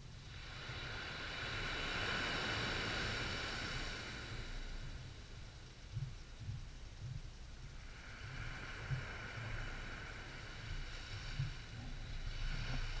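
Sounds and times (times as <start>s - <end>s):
wind rumbling on microphone: 0.0s - 13.0s
small waves washing ashore: 0.1s - 13.0s.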